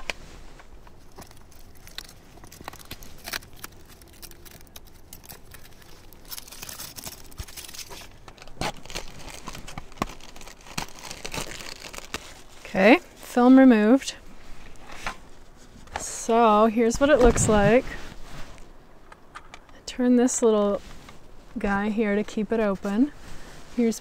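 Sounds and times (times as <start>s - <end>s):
plastic film crinkling: 0.0s - 13.0s.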